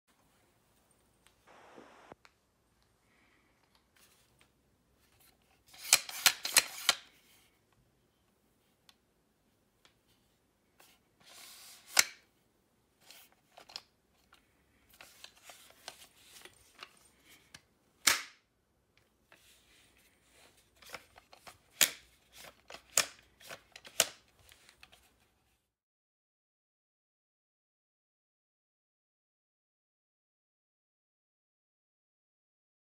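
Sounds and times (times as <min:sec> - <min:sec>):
plastic clamp clicks and snaps: 0:17.5 - 0:18.4, 0:20.8 - 0:25.0.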